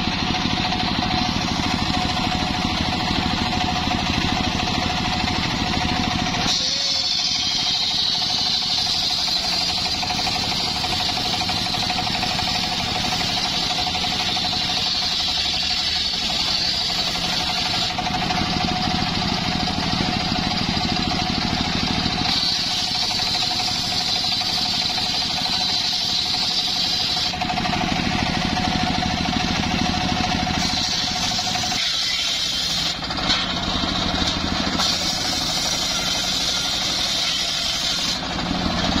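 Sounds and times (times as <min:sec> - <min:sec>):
motor running: 0:00.0 - 0:39.0
circular saw ripping a log: 0:06.2 - 0:28.2, 0:30.6 - 0:39.0.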